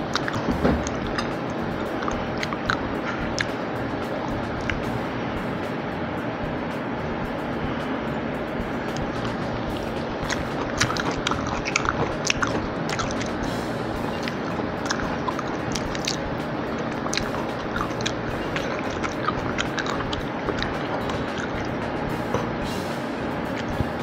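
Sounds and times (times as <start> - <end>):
person chewing: 0.0 - 3.6, 8.9 - 22.6
background hiss: 0.0 - 24.0
low hum: 0.0 - 24.0.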